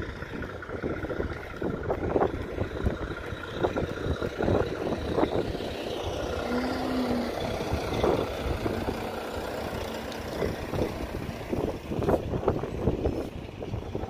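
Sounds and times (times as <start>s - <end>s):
distant diesel truck engine: 0.0s - 14.0s
wind buffeting the microphone: 0.0s - 14.0s.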